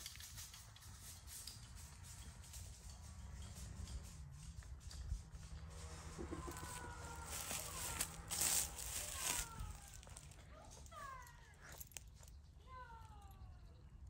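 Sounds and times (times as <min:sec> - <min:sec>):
dry leaves crunching: 0:05.6 - 0:12.3.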